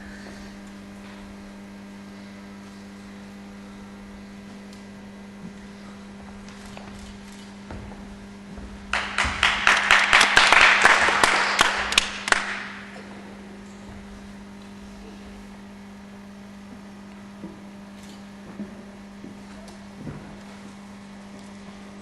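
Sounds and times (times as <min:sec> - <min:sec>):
steady low hum: 0:00.0 - 0:22.0
audience applauding: 0:08.9 - 0:13.0.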